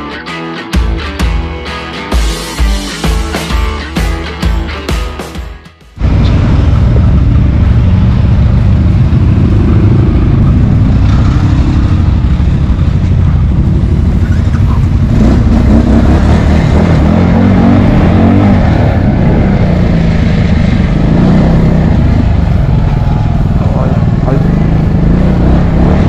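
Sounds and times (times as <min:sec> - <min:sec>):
atv engines idling: 0:06.0 - 0:15.6, 0:19.4 - 0:26.0.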